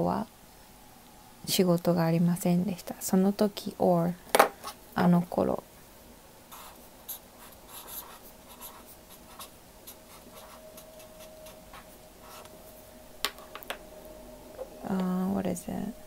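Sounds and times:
marker pen writing on paper: 6.5 - 12.5.

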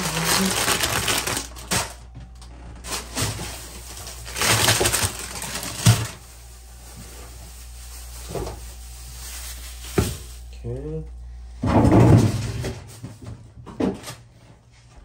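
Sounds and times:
plastic bags crinkling: 0.0 - 10.6.

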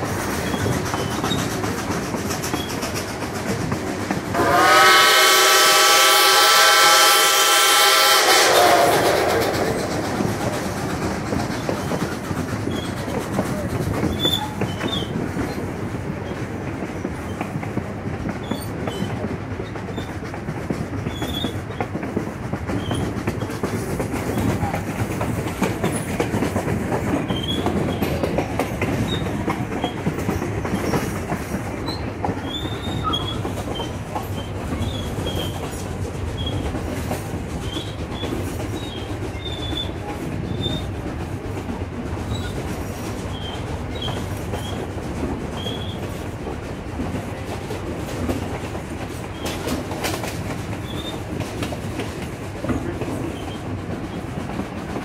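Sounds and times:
train cars rumbling on track: 0.0 - 55.0
wheels clicking on rails: 0.0 - 55.0
high wheel squeals: 14.1 - 15.2, 31.8 - 35.7, 37.6 - 41.0, 45.6 - 46.2.

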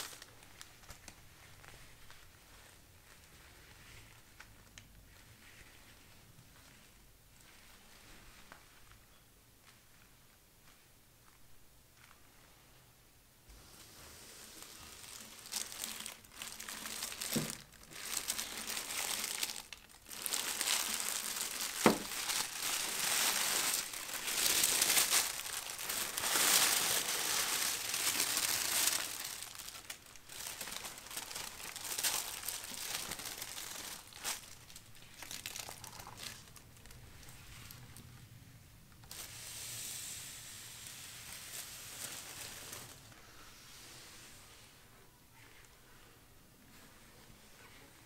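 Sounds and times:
tissue paper crinkling: 0.0 - 8.8, 13.5 - 38.1, 39.0 - 44.2.

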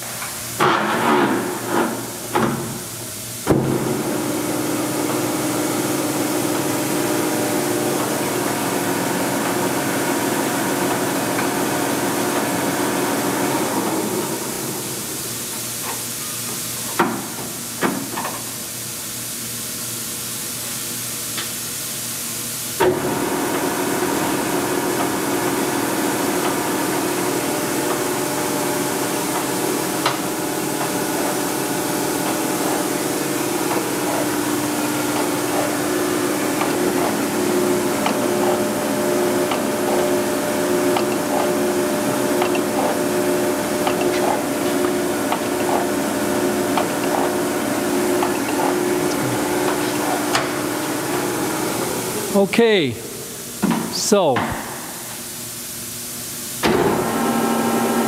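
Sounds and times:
grinder machine hum: 23.0 - 52.4.

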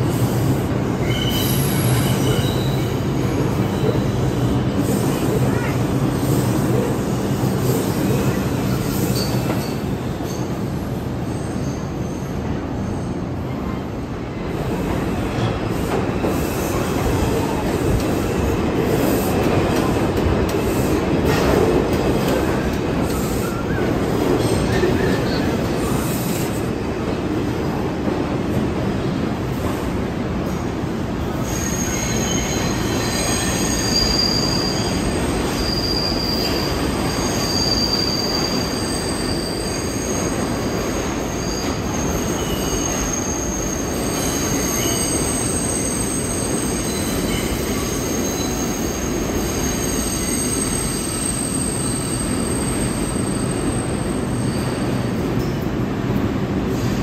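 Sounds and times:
train rumble: 11.9 - 34.1
metallic wheel squeal: 31.5 - 40.3.

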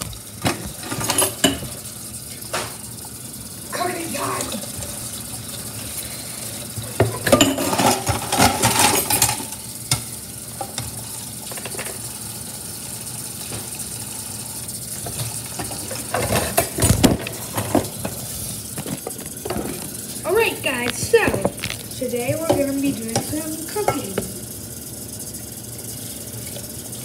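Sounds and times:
foil wrapper crinkling: 20.8 - 22.0.

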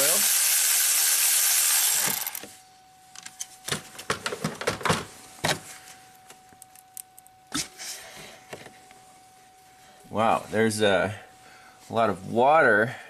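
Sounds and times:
electric ratchet running: 0.0 - 2.4.

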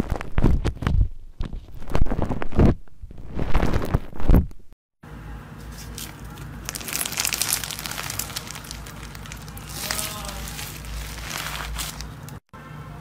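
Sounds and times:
crunchy slime crackling: 5.7 - 12.4
slime squelching: 5.7 - 12.4.

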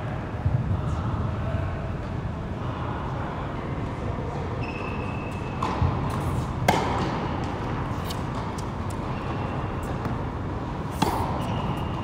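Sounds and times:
steady background noise: 0.0 - 12.0
racket hitting tennis ball: 5.6 - 9.0, 10.8 - 11.9.

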